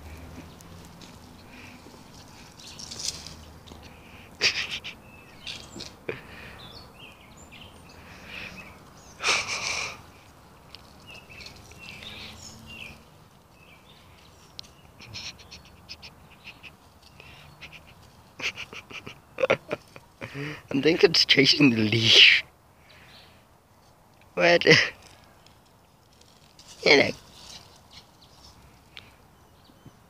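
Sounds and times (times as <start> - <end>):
bird chirps: 0.0 - 19.2.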